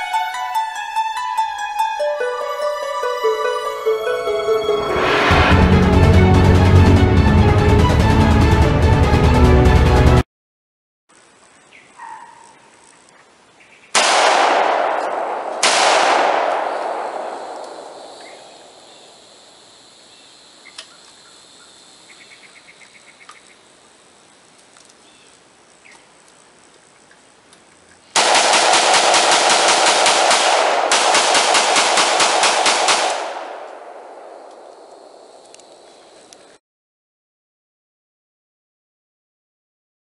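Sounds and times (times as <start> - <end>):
rapid automatic gunfire: 14.0 - 18.0, 28.2 - 34.0
loud blasts: 14.0 - 19.4, 28.2 - 35.5.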